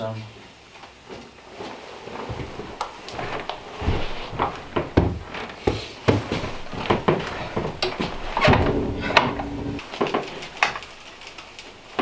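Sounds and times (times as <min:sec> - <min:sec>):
boots stepping: 0:02.2 - 0:09.9
wooden door opening: 0:02.7 - 0:11.2.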